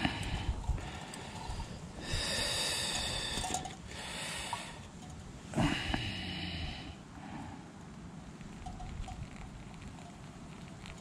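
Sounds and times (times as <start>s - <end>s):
water trickling onto coffee grounds: 8.3s - 11.0s.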